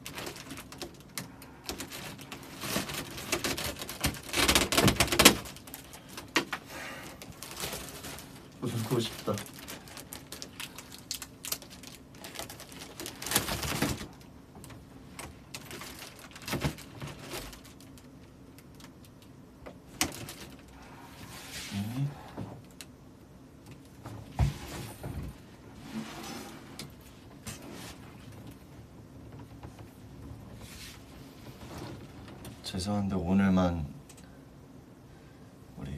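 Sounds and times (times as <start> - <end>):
gift wrapping rustling: 0.0 - 18.9.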